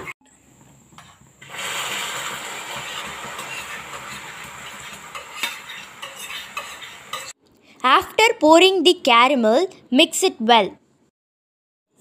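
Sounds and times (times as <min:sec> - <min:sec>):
caramel sizzling in a pan: 0:01.0 - 0:07.4.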